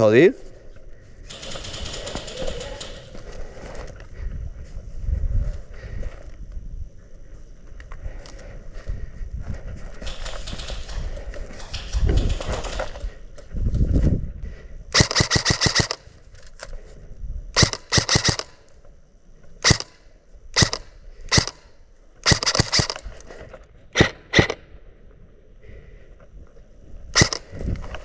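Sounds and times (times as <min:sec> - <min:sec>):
airsoft guns firing: 0:01.3 - 0:03.4, 0:10.0 - 0:13.2, 0:14.9 - 0:16.1, 0:17.6 - 0:18.6, 0:19.6 - 0:23.0, 0:24.0 - 0:24.6, 0:27.2 - 0:27.5.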